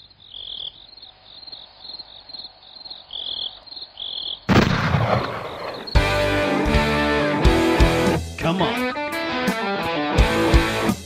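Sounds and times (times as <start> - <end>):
loud explosion boom: 4.5 - 5.9.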